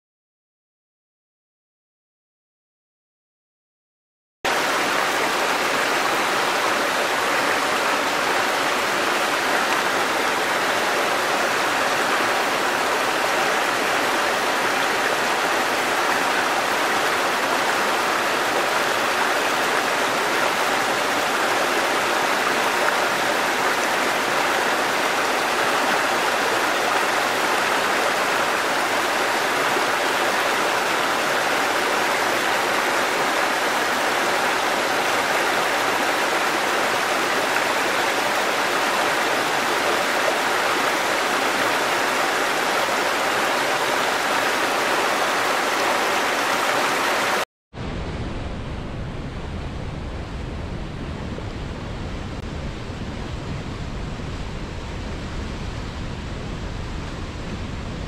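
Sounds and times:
stream rushing over boulders: 4.5 - 47.4.

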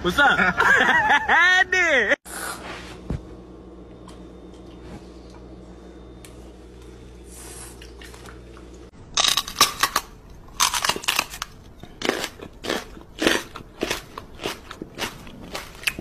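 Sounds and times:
low steady hum: 0.0 - 16.0
man chewing with loud crunching: 3.9 - 5.6, 6.2 - 16.0.

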